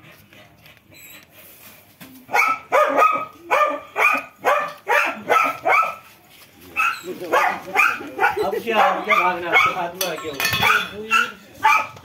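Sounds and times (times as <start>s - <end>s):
dog barking sharply: 2.3s - 6.0s, 6.8s - 9.8s.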